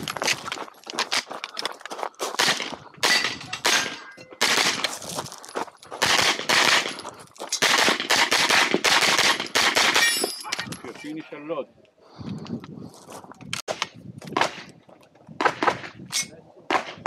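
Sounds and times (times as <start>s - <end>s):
carbine gunshots: 2.4s - 4.9s, 6.0s - 7.0s, 7.6s - 10.2s.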